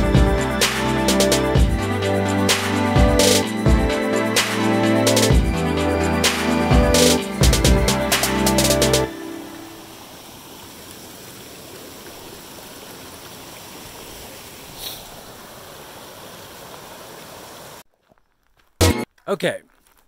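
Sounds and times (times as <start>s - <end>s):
stream splashing over rocks: 9.1s - 17.9s.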